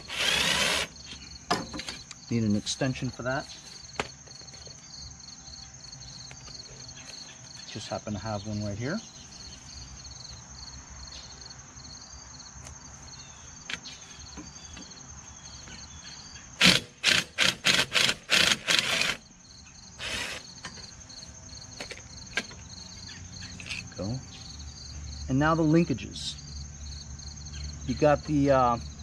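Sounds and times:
cordless power driver bursts: 0.0 - 1.0, 16.6 - 19.2, 20.0 - 20.5
crickets chirping: 0.0 - 29.0.

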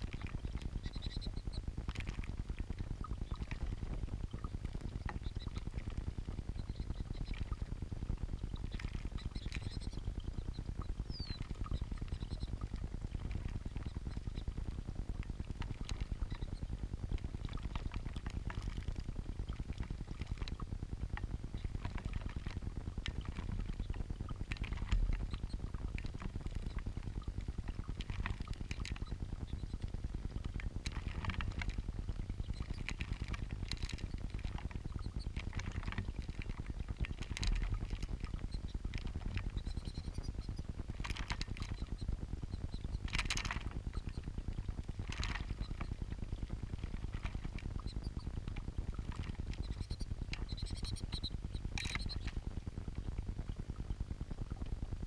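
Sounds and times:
birds splashing in water: 0.0 - 7.6.

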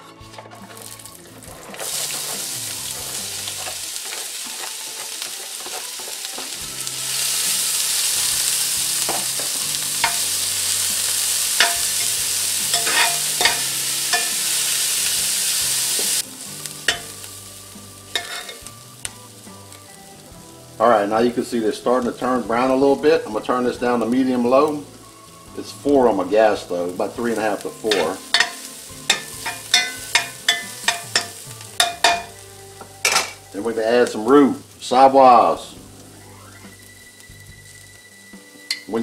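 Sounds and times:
metal spoon scraping pan: 0.0 - 6.6, 9.0 - 15.1, 16.8 - 17.2, 18.1 - 18.7, 27.8 - 32.3
vegetables sizzling in oil: 0.6 - 39.0.

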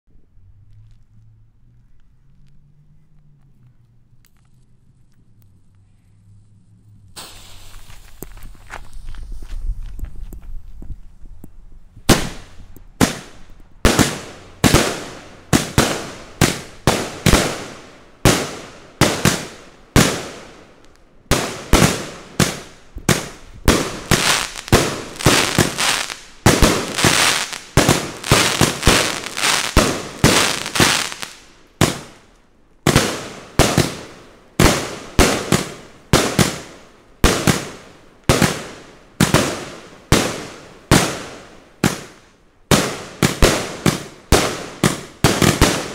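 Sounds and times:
firework cake sharp bangs: 7.2 - 8.3, 12.0 - 20.7, 21.3 - 32.2, 32.9 - 45.9.

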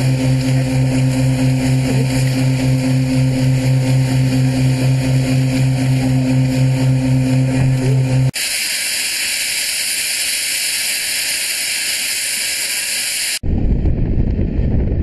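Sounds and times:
low hum: 0.0 - 12.6, 13.4 - 15.0
steam locomotive hissing steam: 8.3 - 13.4.

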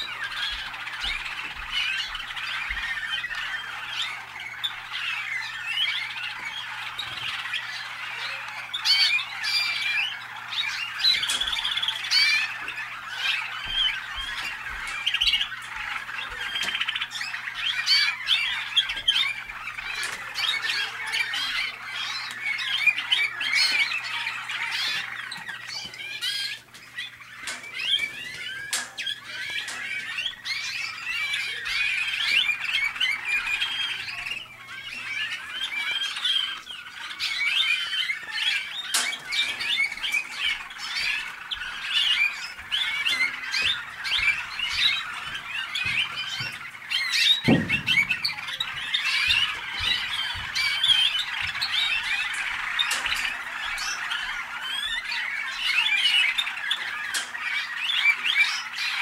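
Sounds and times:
canaries singing: 0.0 - 59.0.

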